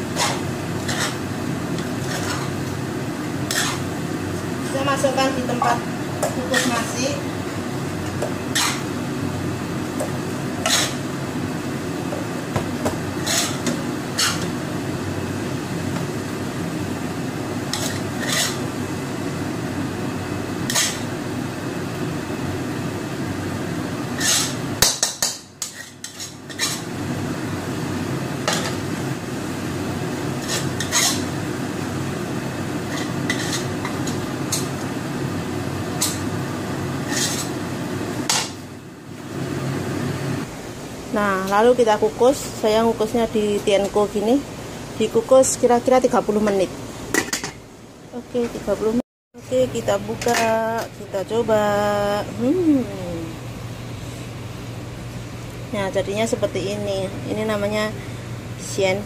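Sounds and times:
metal spatula scraping a wok: 0:00.0 - 0:01.2, 0:01.8 - 0:02.6, 0:03.4 - 0:03.9, 0:06.4 - 0:07.0, 0:08.5 - 0:09.0, 0:10.6 - 0:11.0, 0:13.2 - 0:14.5, 0:17.7 - 0:18.7, 0:20.7 - 0:21.1, 0:24.1 - 0:26.9, 0:30.4 - 0:31.4, 0:32.8 - 0:34.6, 0:37.0 - 0:37.6
steady low hum: 0:00.0 - 0:59.0.

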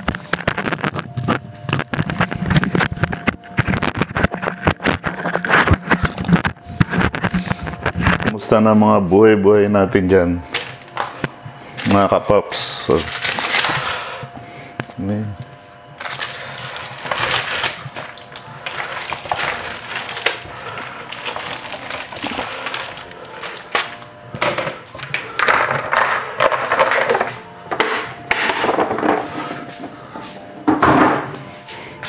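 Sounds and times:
rustling and scraping: 0:00.0 - 0:08.5, 0:16.0 - 0:27.5, 0:28.4 - 0:30.5.

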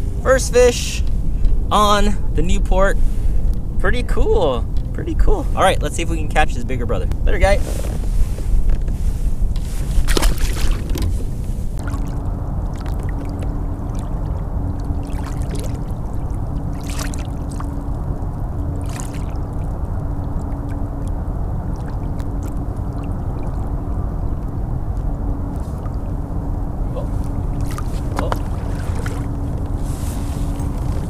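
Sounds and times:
water lapping along hull: 0:07.4 - 0:31.0
short splash: 0:10.0 - 0:10.9, 0:15.0 - 0:17.7, 0:18.8 - 0:19.6, 0:27.5 - 0:31.0
electric boat motor humming: 0:10.7 - 0:31.0.

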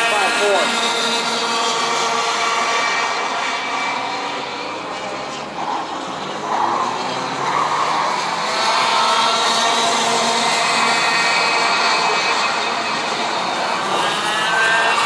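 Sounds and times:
kart engines buzzing: 0:00.0 - 0:15.0.

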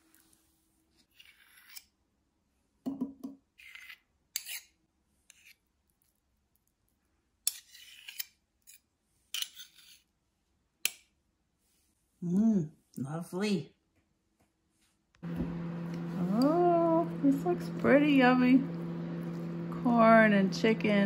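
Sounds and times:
metal spoons scraping and clinking: 0:03.6 - 0:05.6, 0:07.4 - 0:10.1.

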